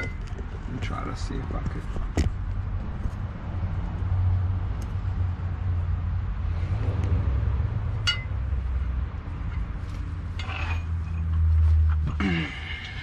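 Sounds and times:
low steady rumble: 0.0s - 13.0s
metallic clink: 8.0s - 8.4s.

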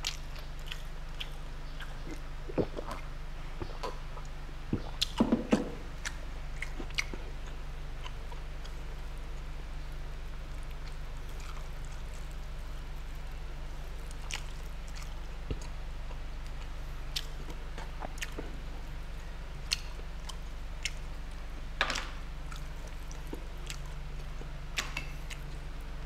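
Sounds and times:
chewing: 0.0s - 25.8s
steady low hum: 0.0s - 26.0s.

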